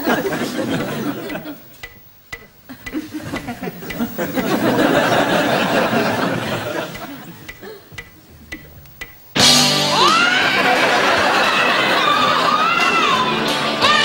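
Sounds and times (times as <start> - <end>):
audience laughing: 0.0 - 1.7, 2.7 - 8.5, 10.0 - 13.4.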